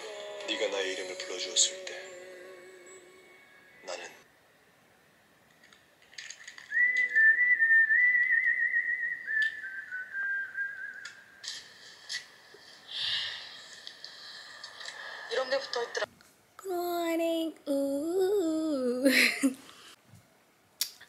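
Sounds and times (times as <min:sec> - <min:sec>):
high wavering whistle: 0:06.7 - 0:11.4.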